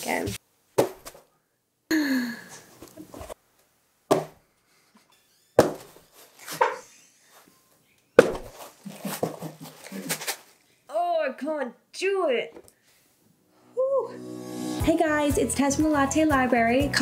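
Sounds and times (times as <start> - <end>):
woman exclaiming: 13.8 - 14.2.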